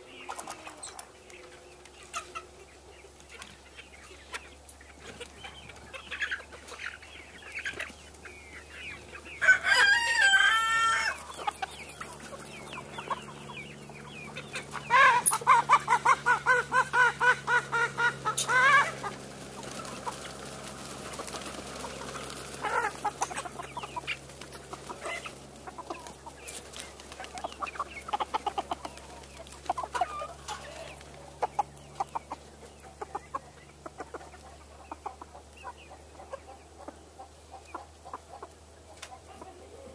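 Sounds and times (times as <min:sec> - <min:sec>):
chickens clucking: 0:00.0 - 0:39.9
rapid repeated chicken calls: 0:00.0 - 0:39.9
rooster crowing: 0:09.4 - 0:11.3.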